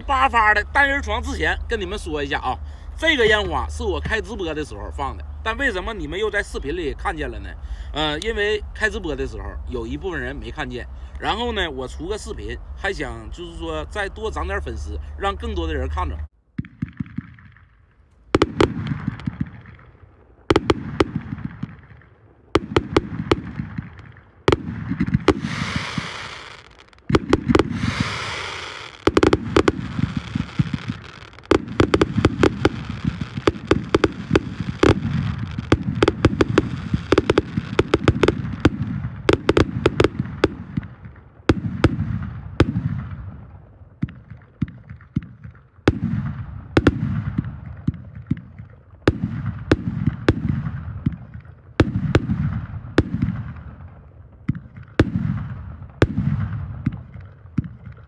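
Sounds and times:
firework aerial bursts crackling: 0:00.0 - 0:58.0
firework launch thumps: 0:22.6 - 0:42.0.

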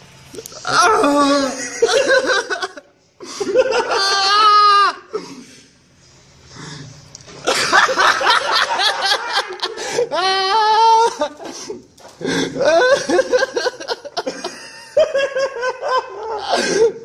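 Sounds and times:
people laughing hard: 0:00.4 - 0:05.2, 0:07.4 - 0:17.0
long high laugh: 0:00.5 - 0:05.2, 0:12.5 - 0:17.0.

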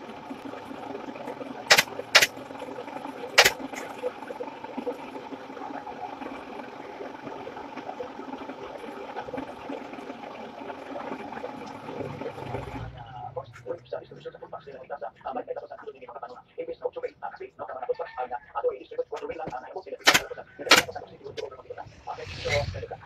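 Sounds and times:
steady mechanical hum: 0:00.0 - 0:18.0, 0:18.6 - 0:23.0
sharp loud snaps: 0:01.7 - 0:02.3, 0:03.4 - 0:03.6, 0:20.0 - 0:21.0.

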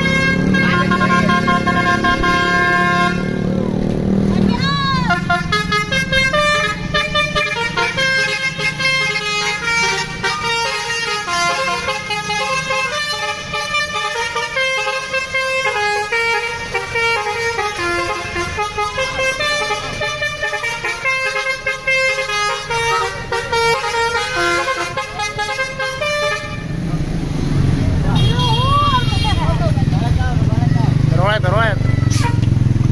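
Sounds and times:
musical air horn melody: 0:00.0 - 0:03.6, 0:05.0 - 0:26.8, 0:32.1 - 0:32.5.

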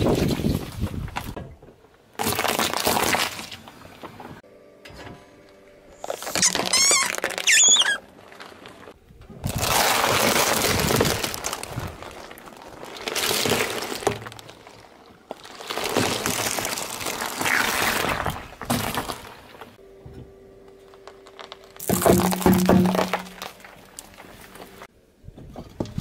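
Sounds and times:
tyre crushing objects: 0:06.0 - 0:19.7, 0:21.2 - 0:24.9
eggs cracking under wheel: 0:06.0 - 0:19.8, 0:20.8 - 0:24.9.

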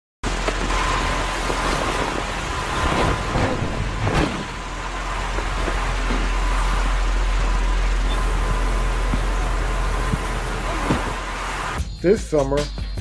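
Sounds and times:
electric fans whooshing hum: 0:00.2 - 0:11.8
body dropping onto sofa: 0:10.0 - 0:11.4.

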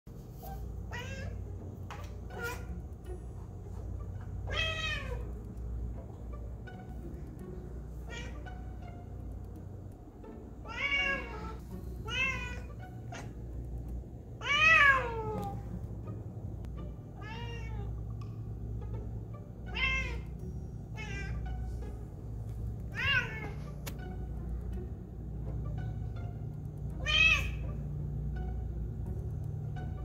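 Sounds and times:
cat meowing: 0:00.9 - 0:01.4, 0:04.5 - 0:05.2, 0:10.6 - 0:12.8, 0:17.2 - 0:17.9, 0:27.0 - 0:27.6.

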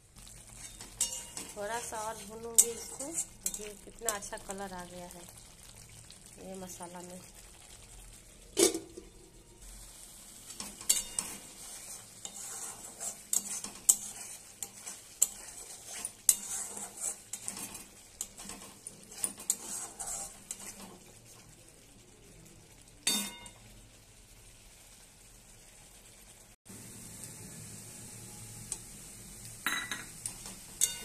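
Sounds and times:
masala sizzling: 0:00.0 - 0:31.0
metal spatula scraping a pan: 0:00.3 - 0:04.3, 0:10.4 - 0:21.1.

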